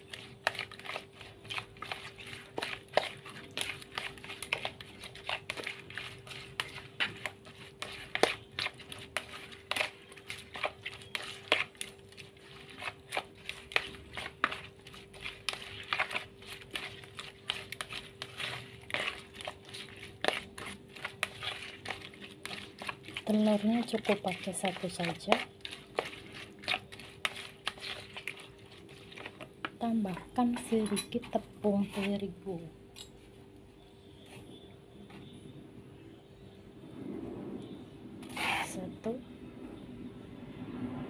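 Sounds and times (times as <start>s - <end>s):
spatula stirring wet shrimp: 0.0s - 32.7s.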